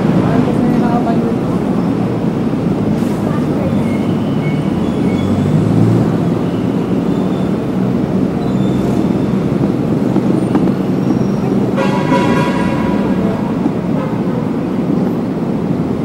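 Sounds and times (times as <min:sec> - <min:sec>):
city road traffic rumble: 0:00.0 - 0:16.0.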